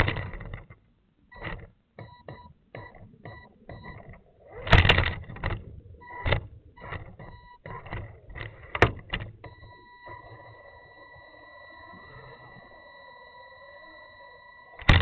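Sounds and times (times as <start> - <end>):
clunks and rattles: 0.0 - 0.8, 1.4 - 10.3
rc car electric motor whine: 9.5 - 15.0.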